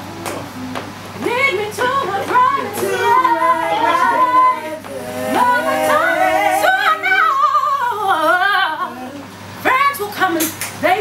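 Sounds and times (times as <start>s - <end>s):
gospel choir singing in harmony: 1.2s - 9.2s.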